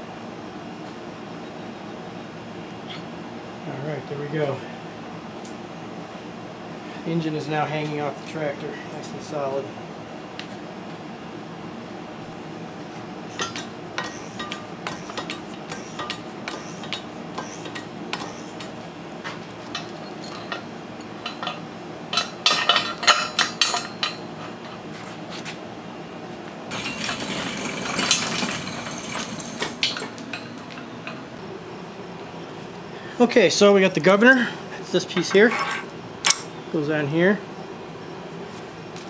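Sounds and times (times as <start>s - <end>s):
steady low hum: 0.0s - 39.0s
metal chain clinking and rattling: 19.7s - 24.6s, 26.7s - 31.2s.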